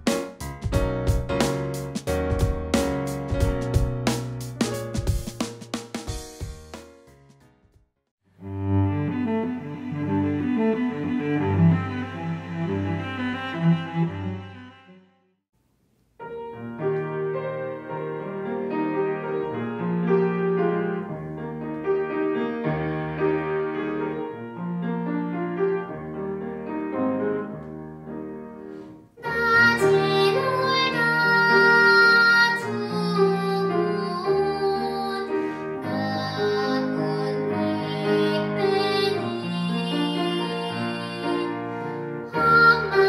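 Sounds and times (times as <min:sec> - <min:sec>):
grand piano: 0:00.0 - 0:07.7, 0:16.1 - 0:43.0
girl singing: 0:29.2 - 0:43.0.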